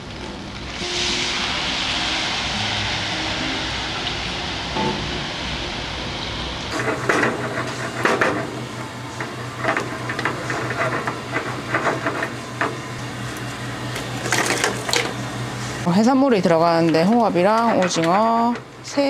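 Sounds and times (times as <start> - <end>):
steady low hum: 0.0 - 19.0
wooden spatula scraping metal pan: 6.7 - 12.8.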